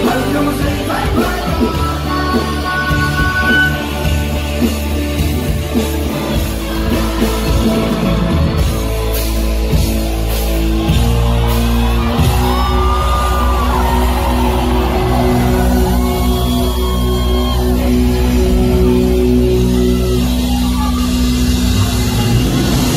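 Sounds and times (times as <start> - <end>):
person singing: 0.0 - 8.3
rock band playing: 0.0 - 22.9.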